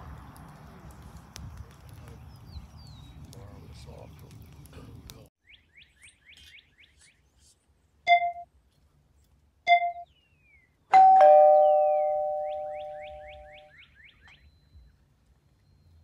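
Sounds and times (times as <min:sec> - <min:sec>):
light outdoor noise: 0:00.0 - 0:16.0
two-tone bell chime: 0:11.0 - 0:13.1
faint bird chirps: 0:12.2 - 0:16.0.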